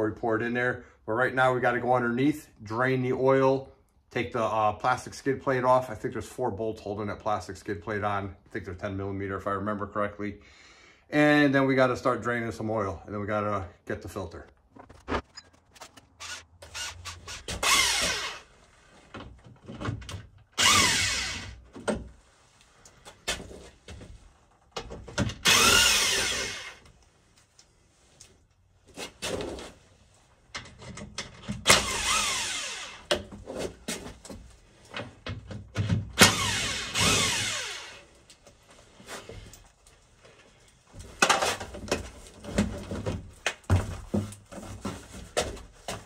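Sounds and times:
clicks and rattles of handling: 30.5s - 31.7s.

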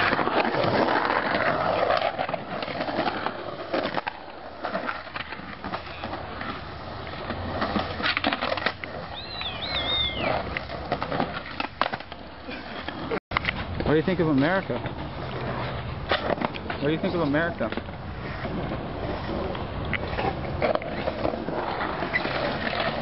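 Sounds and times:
skateboard clacks: 0.0s - 23.0s
skateboard wheels rolling on concrete: 0.0s - 23.0s
high warbling chirp: 9.2s - 10.3s.

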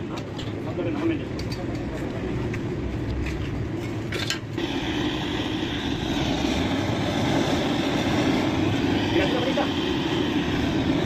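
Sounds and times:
hose jet rushing hiss: 4.6s - 11.0s.

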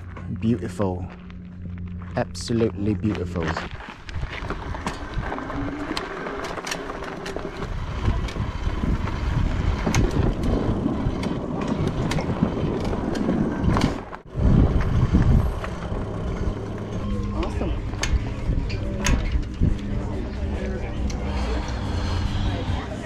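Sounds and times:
bike tyres rolling on trail: 0.0s - 23.0s
wind rumbling on microphone: 0.0s - 23.0s.

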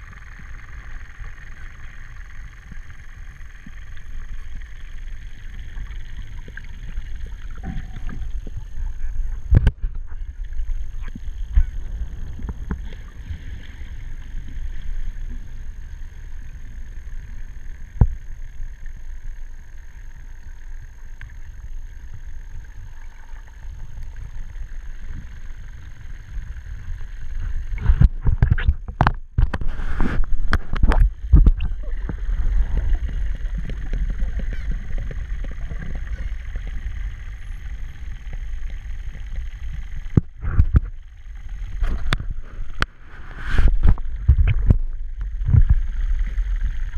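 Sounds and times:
muffled underwater rumble: 0.0s - 46.9s
sharp knocks and crackles: 5.6s - 15.5s, 27.3s - 46.9s.

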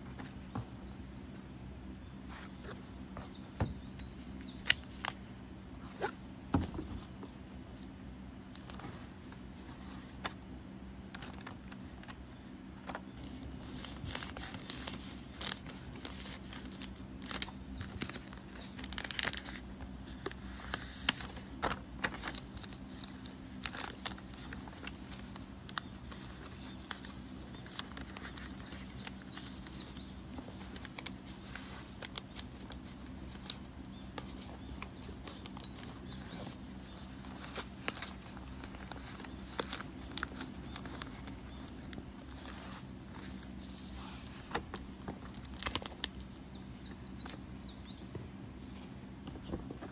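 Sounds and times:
steady low hum: 0.0s - 49.9s
paper and plastic sleeves rustling: 2.2s - 5.2s, 8.5s - 10.4s, 11.1s - 12.2s, 12.8s - 46.2s.

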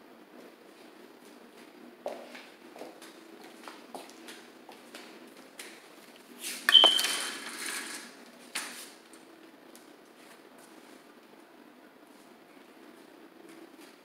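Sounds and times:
window blind slats clattering: 6.6s - 8.8s.

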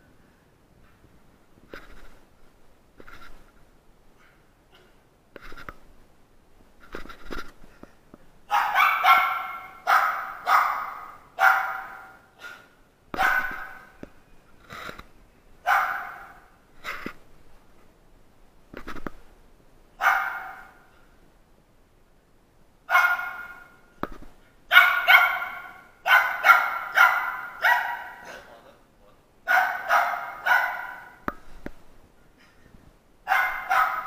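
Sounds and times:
small dog barking: 8.5s - 12.6s, 13.2s - 13.9s, 15.6s - 16.5s, 20.0s - 20.8s, 22.9s - 23.8s, 24.7s - 28.5s, 29.4s - 31.2s, 33.2s - 34.0s.

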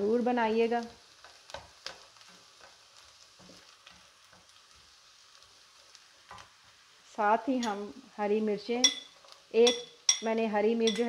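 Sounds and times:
onions sizzling in oil: 0.0s - 11.0s
spatula scraping a pan: 1.2s - 4.9s.

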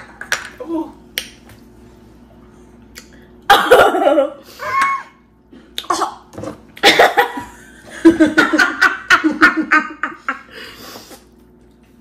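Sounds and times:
women laughing: 6.8s - 10.6s.

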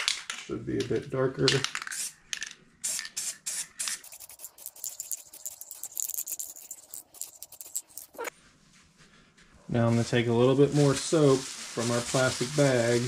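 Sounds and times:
spray can hissing: 1.8s - 2.2s, 2.8s - 8.3s.

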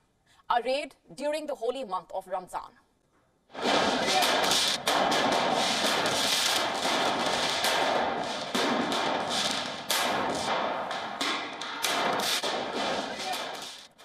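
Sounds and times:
stun grenades and firecrackers banging: 3.5s - 14.0s.

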